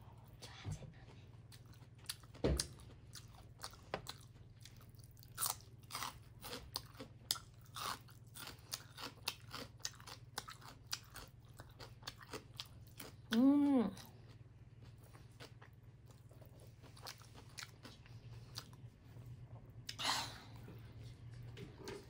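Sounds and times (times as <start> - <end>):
low steady hum: 0.0 - 22.0
chewing and mouth smacking: 1.4 - 13.4, 14.0 - 18.9.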